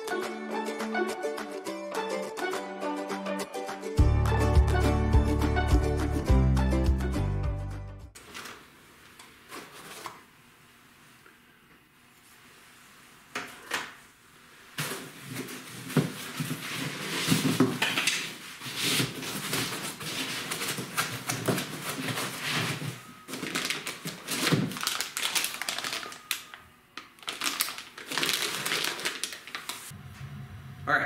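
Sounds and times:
packing foam rustling in cardboard box: 14.8s - 17.8s, 18.4s - 26.3s, 27.2s - 29.9s.

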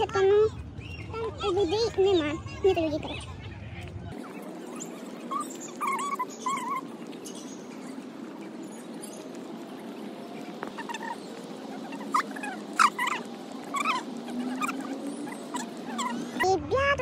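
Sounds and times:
dog whining and yelping: 4.7s - 6.9s, 11.9s - 16.4s.

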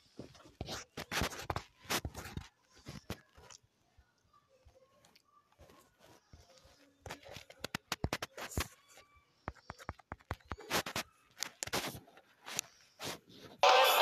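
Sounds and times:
fingers tapping a smartphone: 6.4s - 11.8s.

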